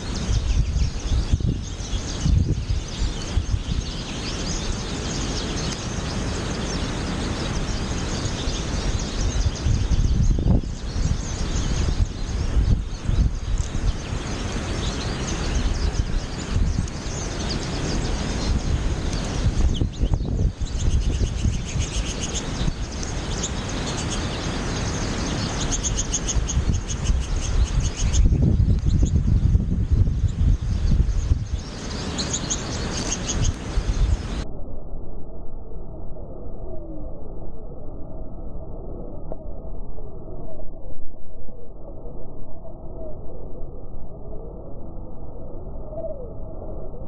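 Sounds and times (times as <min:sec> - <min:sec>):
birds twittering: 0:00.0 - 0:34.4
wind noise on microphone: 0:00.0 - 0:35.4.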